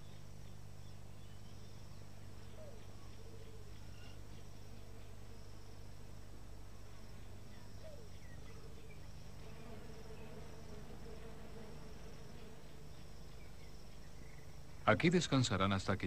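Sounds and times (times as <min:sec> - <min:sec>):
pulsing insect trill: 0:00.0 - 0:16.0
swarm of flies buzzing: 0:04.1 - 0:15.3.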